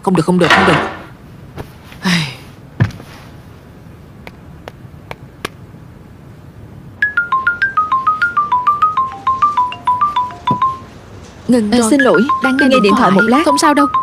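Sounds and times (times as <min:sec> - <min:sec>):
phone ringtone chiming melody: 0:07.0 - 0:10.9, 0:11.9 - 0:14.0.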